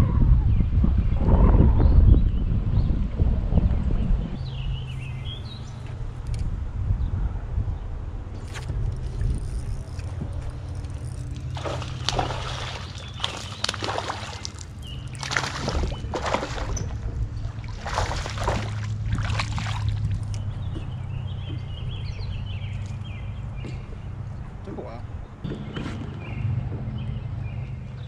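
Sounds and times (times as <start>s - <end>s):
boat motor humming: 8.1s - 28.0s
water slapping against hull: 8.6s - 22.3s.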